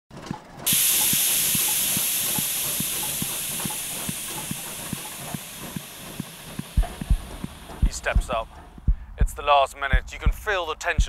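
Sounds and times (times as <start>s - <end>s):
steam hissing: 0.6s - 8.8s
low rhythmic thumping: 0.6s - 11.0s.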